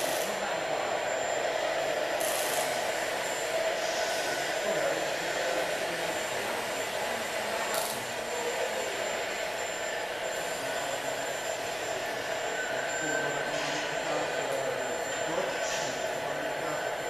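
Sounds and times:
electric motors whirring: 1.8s - 4.3s.

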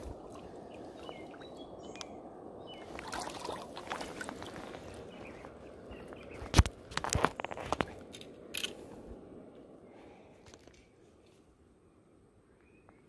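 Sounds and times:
river water running: 0.0s - 6.6s.

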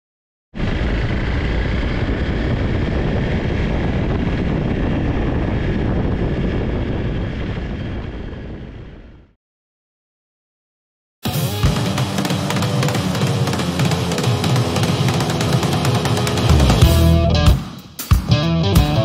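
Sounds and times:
motorcycle engine drone: 0.6s - 9.4s, 11.3s - 17.5s
wind noise: 0.6s - 9.4s.

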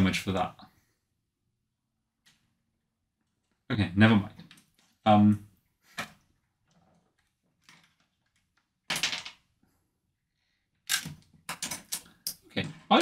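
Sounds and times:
plastic bricks clicking and clattering: 6.6s - 9.5s, 10.9s - 13.0s.

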